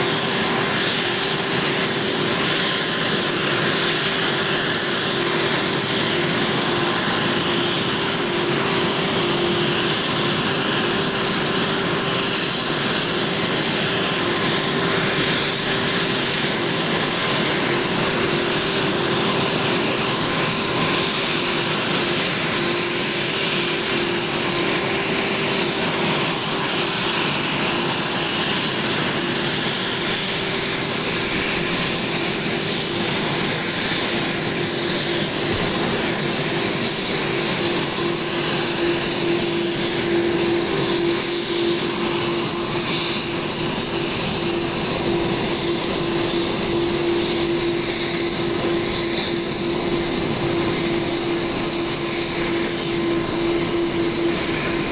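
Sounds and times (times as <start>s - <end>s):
jet engines taxiing: 0.0s - 54.9s.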